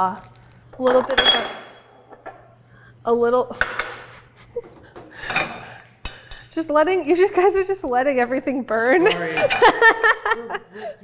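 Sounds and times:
utensils clinking on ceramic dishes: 0.8 - 2.4.

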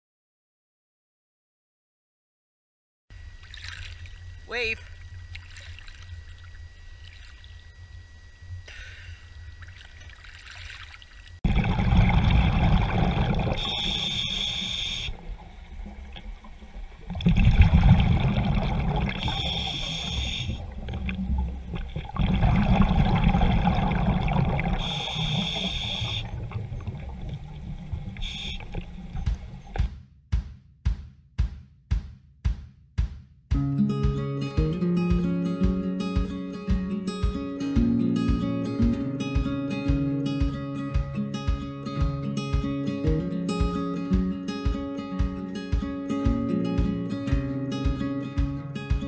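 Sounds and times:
low rumble of water: 3.2 - 29.9
scuba regulator breathing: 8.6 - 9.4, 13.0 - 15.2, 18.9 - 20.9, 24.7 - 26.5, 28.1 - 29.0.

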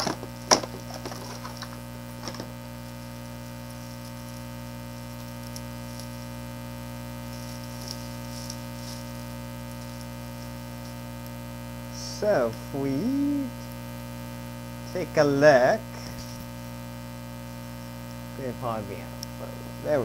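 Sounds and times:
plastic bag crinkling: 0.0 - 2.6
electrical mains hum: 0.0 - 20.0.

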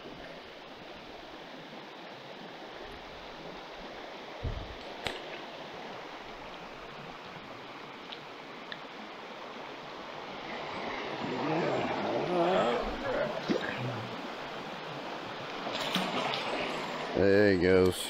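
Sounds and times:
river water flowing: 0.0 - 18.0
low thump: 4.4 - 4.8
faint ticks: 8.0 - 8.9.

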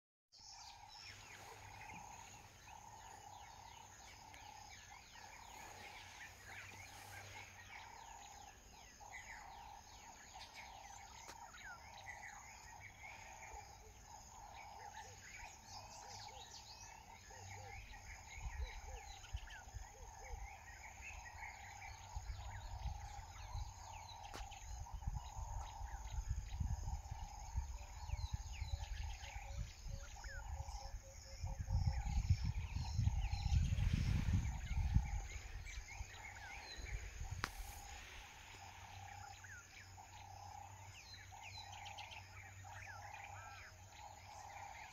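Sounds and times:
small birds chirping: 0.3 - 44.9
insect drone: 0.4 - 44.9
wind buffeting microphone: 17.9 - 40.7.

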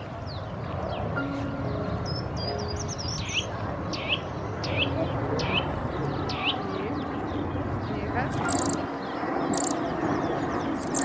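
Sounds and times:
bird twittering and whistling: 8.4 - 9.8, 10.6 - 11.0.

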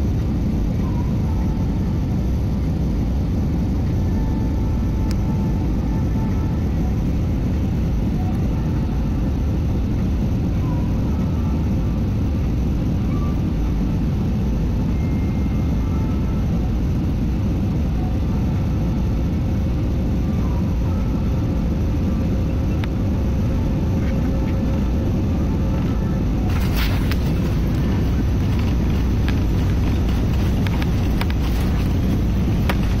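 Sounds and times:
airliner cabin rumble: 0.0 - 33.0
faint steady tone: 3.6 - 33.0.

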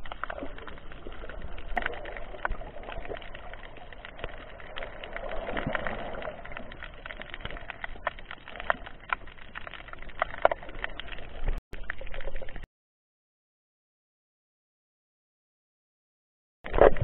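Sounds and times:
muffled underwater water wash: 0.0 - 12.6
crackling clicks underwater: 0.0 - 12.7, 16.7 - 17.0.

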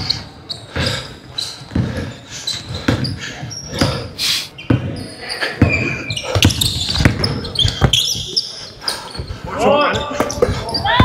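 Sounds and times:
sneaker squeaks: 0.0 - 11.0
basketball bouncing on hardwood: 5.6 - 8.1.

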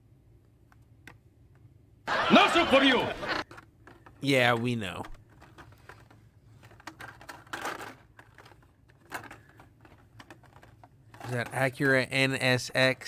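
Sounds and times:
plastic and cardboard rustling: 2.8 - 12.4.

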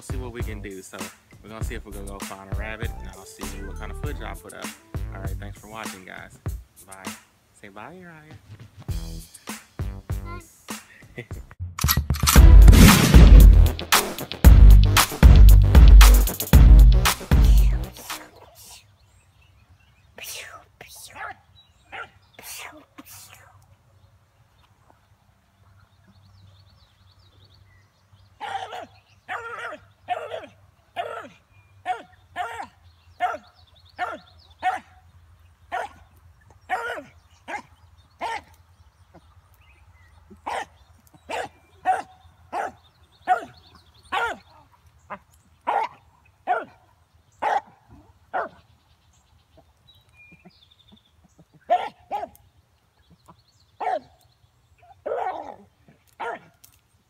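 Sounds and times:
hound barking: 21.2 - 22.2, 28.4 - 35.0, 35.7 - 36.0, 36.7 - 38.6, 40.4 - 48.6, 51.6 - 52.4, 53.8 - 54.2, 54.9 - 56.6.

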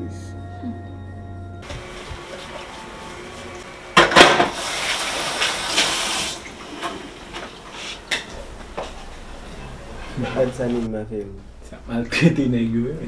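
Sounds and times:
dishes and cutlery clinking: 8.0 - 10.9.

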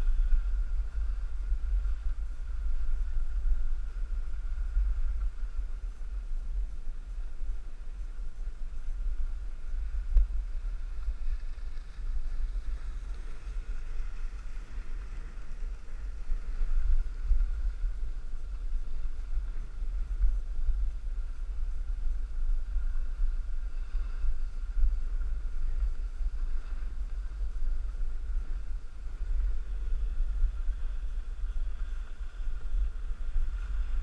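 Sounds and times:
wind buffeting microphone: 0.0 - 34.0.

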